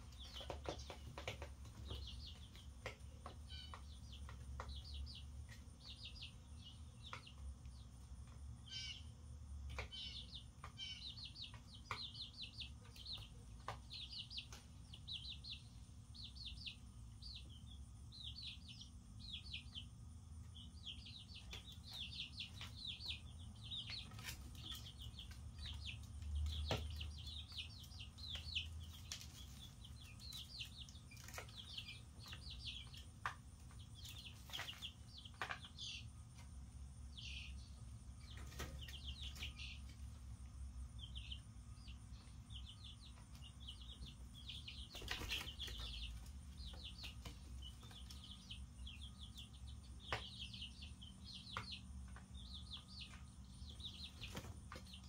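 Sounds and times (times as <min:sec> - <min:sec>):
chicks peeping: 0:00.0 - 0:55.0.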